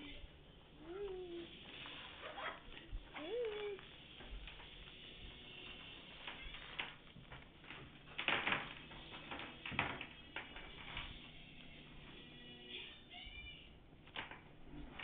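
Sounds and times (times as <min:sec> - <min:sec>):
plastic bag crinkling: 0:01.3 - 0:11.1.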